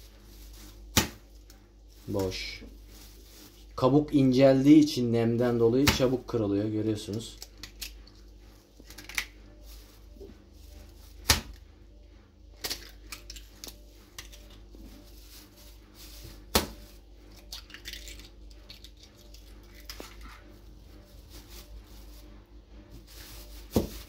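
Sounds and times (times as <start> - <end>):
plastic bag rustling: 0.0 - 7.1, 8.0 - 24.0
eggs cracking: 7.2 - 8.2, 12.6 - 14.4, 17.3 - 20.3.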